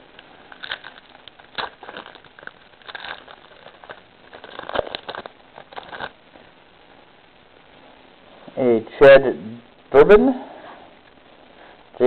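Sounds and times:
wrapper tearing and crinkling: 0.5 - 6.2.

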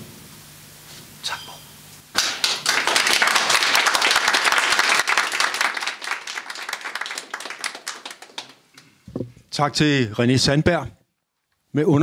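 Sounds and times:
audience applauding: 2.1 - 8.6.

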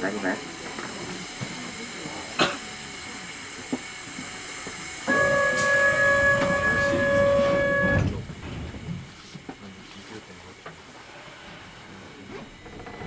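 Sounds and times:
steady buzzer tone: 5.0 - 8.2.

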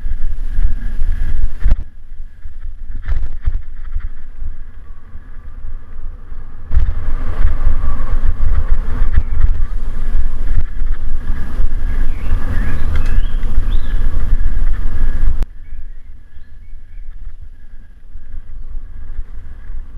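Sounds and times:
tyres rumbling over dirt: 0.0 - 15.4
wind buffeting microphone: 0.0 - 19.9.

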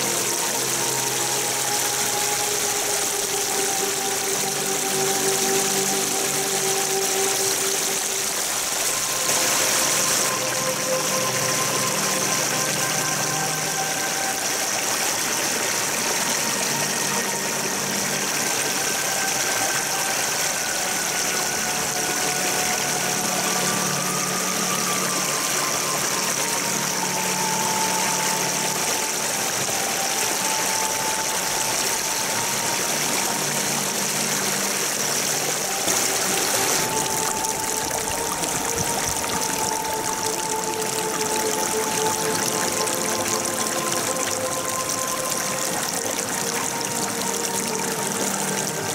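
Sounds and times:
stream running over stones: 0.0 - 48.9.

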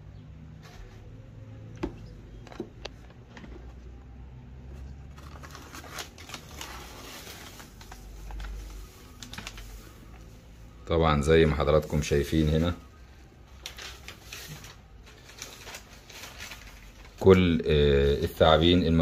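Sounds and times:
paper rustling and crinkling: 4.7 - 10.6, 11.8 - 19.0.

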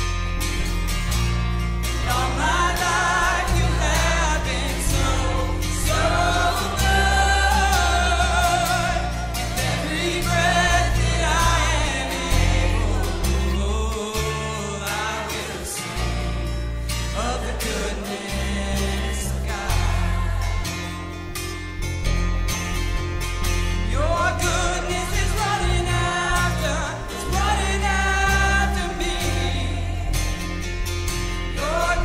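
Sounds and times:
worship band playing: 1.9 - 21.2
person singing: 2.0 - 21.1, 23.8 - 30.4, 31.5 - 32.0.

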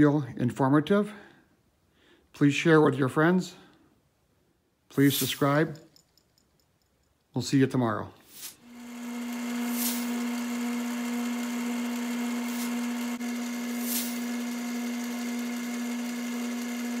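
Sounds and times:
brief swishes: 8.3 - 8.6
lathe motor hum: 8.6 - 17.0.

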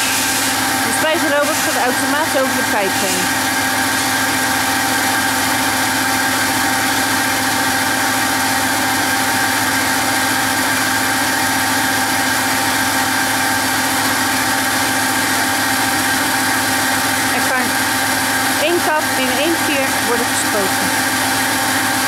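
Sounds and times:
spray robot mechanical hum: 0.0 - 4.5.

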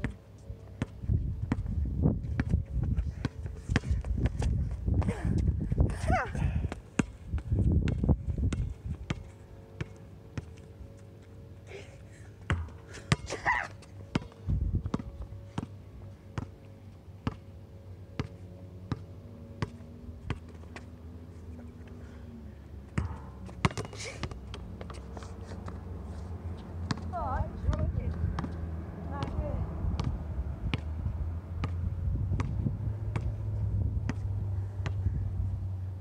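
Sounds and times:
wind on microphone: 1.0 - 9.1, 29.5 - 35.6
basketball bouncing on court: 12.5 - 13.3, 17.2 - 17.4, 18.2 - 20.5, 23.0 - 25.0, 26.9 - 28.6, 29.2 - 29.4, 30.0 - 31.0, 32.4 - 33.4, 34.1 - 35.0.

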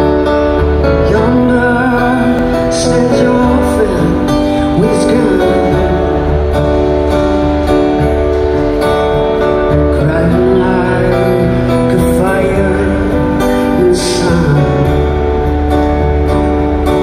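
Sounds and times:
acoustic guitar strumming: 0.0 - 17.0
person singing: 0.7 - 7.0, 9.7 - 15.7.

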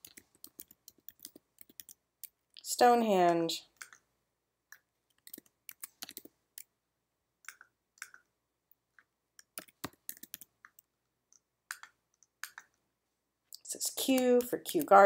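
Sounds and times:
keyboard typing: 0.0 - 2.4, 3.2 - 4.1, 4.7 - 6.7, 7.4 - 8.3, 9.4 - 12.8, 13.8 - 15.0
mouse clicks: 3.8 - 4.1, 7.4 - 8.3, 9.4 - 12.8.

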